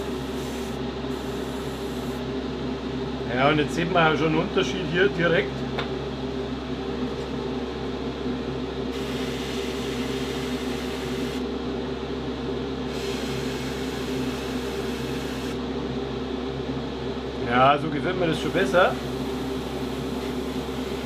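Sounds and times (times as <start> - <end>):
steady motor hum: 0.0 - 21.0
airbrush spraying air hiss: 9.0 - 11.4, 12.9 - 15.5.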